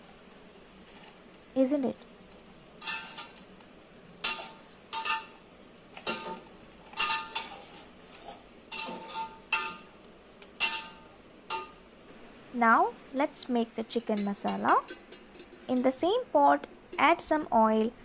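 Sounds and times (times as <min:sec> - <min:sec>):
fried onions clinking on metal plate: 0:02.8 - 0:03.4, 0:04.2 - 0:05.4, 0:06.0 - 0:09.9, 0:10.5 - 0:11.8.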